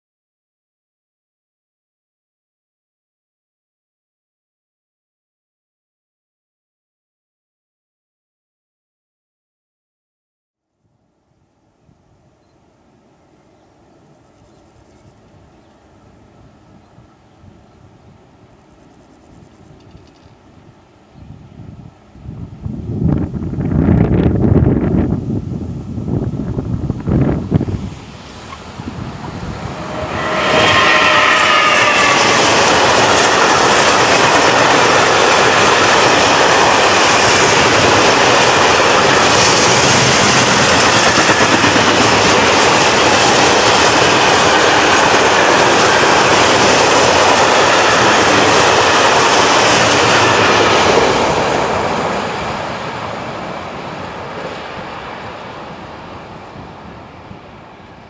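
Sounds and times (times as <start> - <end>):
electric locomotive whine: 12.3 - 58.0
train wheels rumbling on rails: 25.8 - 56.8.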